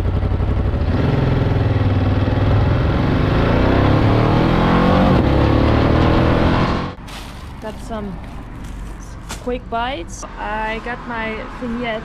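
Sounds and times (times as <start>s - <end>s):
motorcycle engine accelerating: 0.0s - 7.0s.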